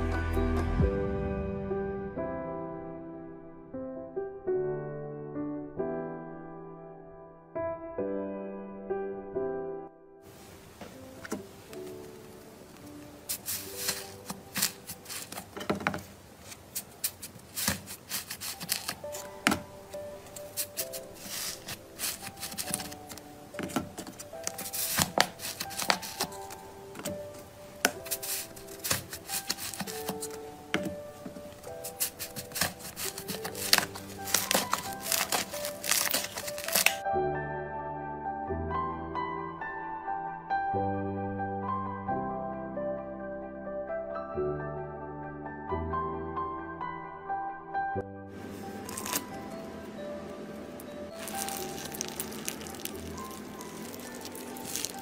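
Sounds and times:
soft background music: 0:00.0 - 0:55.0
slime crackling and popping: 0:13.3 - 0:15.5, 0:16.4 - 0:27.1, 0:31.6 - 0:37.0, 0:48.6 - 0:49.6, 0:51.1 - 0:55.0.

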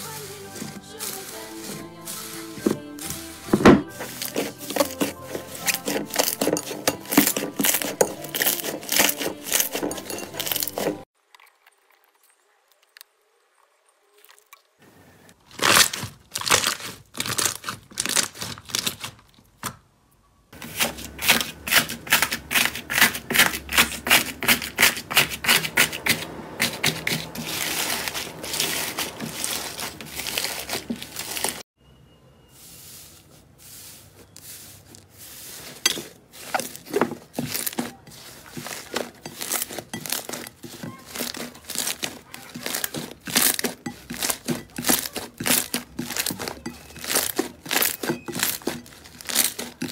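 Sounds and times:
slime crackling and popping: 0:15.4 - 0:19.2, 0:36.4 - 0:49.9.

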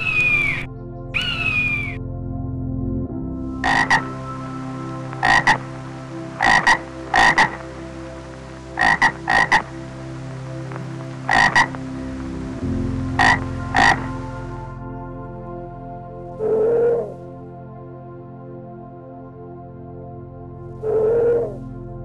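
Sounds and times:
frog croaking: 0:00.0 - 0:02.0, 0:03.6 - 0:04.3, 0:05.0 - 0:11.9, 0:13.1 - 0:14.3, 0:16.4 - 0:17.2, 0:20.8 - 0:21.6.

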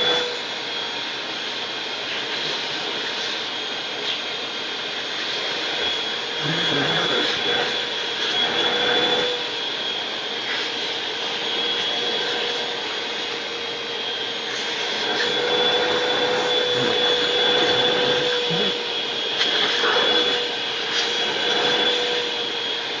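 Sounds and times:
vacuum cleaner running: 0:00.0 - 0:23.0
dog biting vacuum hose: 0:06.4 - 0:09.4, 0:14.5 - 0:18.8, 0:19.4 - 0:22.0.

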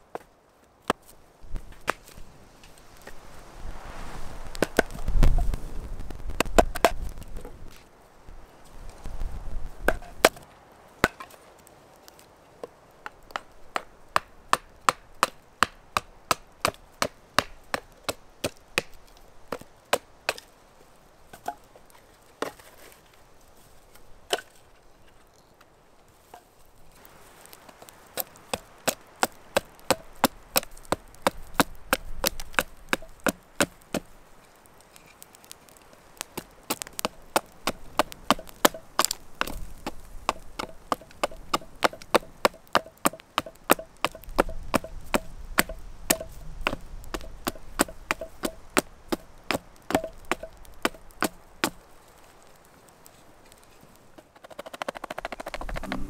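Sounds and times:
wood chopping strikes: 0:04.5 - 0:05.5, 0:06.3 - 0:07.2, 0:09.8 - 0:10.4, 0:11.0 - 0:11.4, 0:13.0 - 0:20.5, 0:28.2 - 0:34.1, 0:36.4 - 0:51.8.

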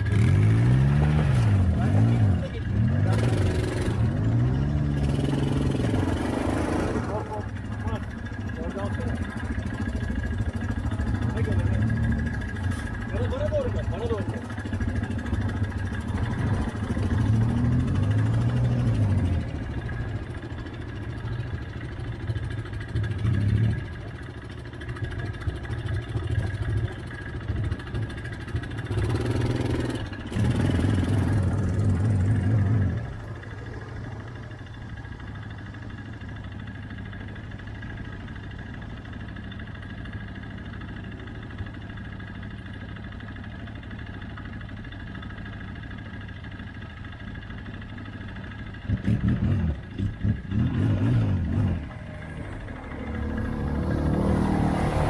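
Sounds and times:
atv engine revving and idling: 0:00.0 - 0:55.0.

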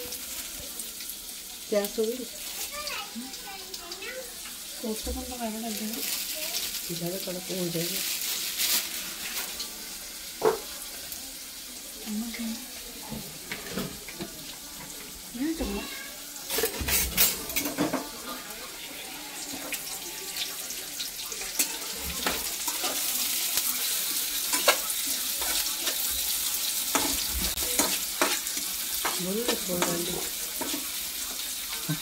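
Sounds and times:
onion sizzling in hot oil: 0:00.0 - 0:32.0
metal spoon scraping pan: 0:26.9 - 0:30.9.

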